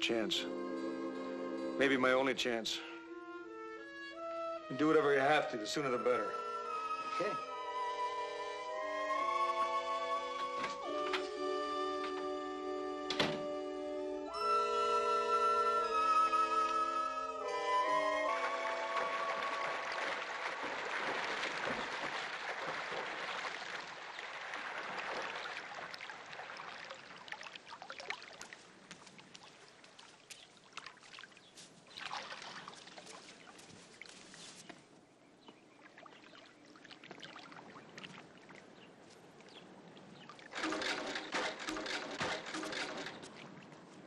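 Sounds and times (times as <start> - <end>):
swimmer splashing: 17.8 - 34.3
water dripping and lapping: 17.9 - 44.0.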